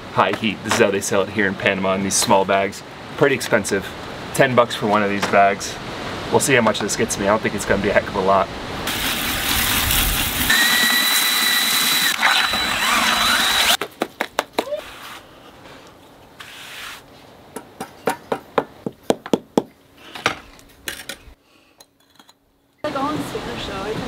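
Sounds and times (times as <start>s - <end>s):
hose water rushing into bucket: 8.9s - 13.7s
trowel scraping cement: 16.4s - 17.0s.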